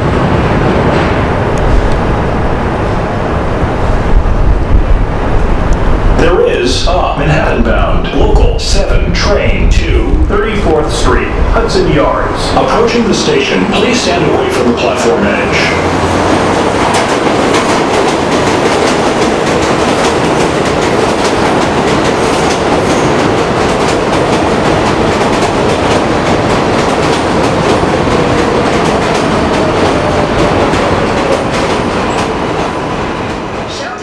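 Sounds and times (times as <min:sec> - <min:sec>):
train wheels rumbling on rail: 0:00.0 - 0:34.0
wheels clickety-clack: 0:15.6 - 0:33.8.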